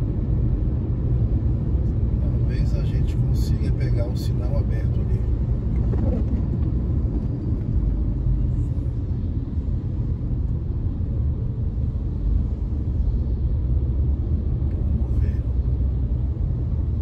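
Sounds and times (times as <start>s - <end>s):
car driving on wet road: 5.2s - 8.4s.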